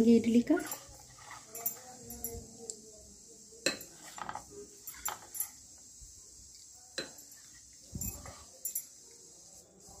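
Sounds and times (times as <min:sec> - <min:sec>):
spoon clinking on metal plate: 0:00.5 - 0:02.6, 0:03.6 - 0:05.6, 0:07.0 - 0:09.0.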